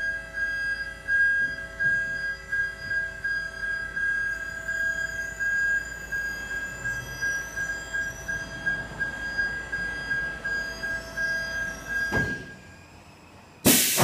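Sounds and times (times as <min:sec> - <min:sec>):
deck lift whining: 0:00.0 - 0:14.0.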